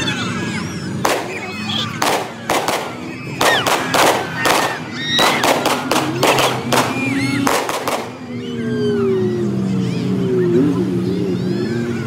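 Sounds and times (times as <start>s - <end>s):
engines idling: 0.0s - 12.0s
voices calling out: 0.0s - 12.0s
sharp bangs: 1.0s - 8.3s.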